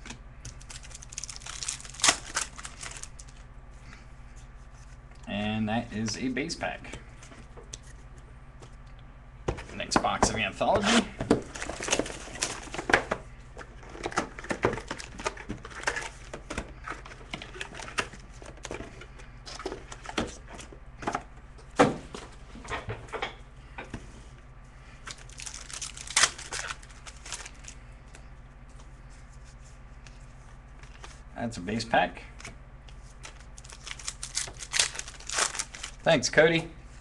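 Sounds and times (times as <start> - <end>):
wrappers tearing and crinkling: 0.5 - 3.4, 25.1 - 27.8, 33.2 - 36.1
cards clicking and rustling: 25.1 - 28.2, 32.4 - 36.0.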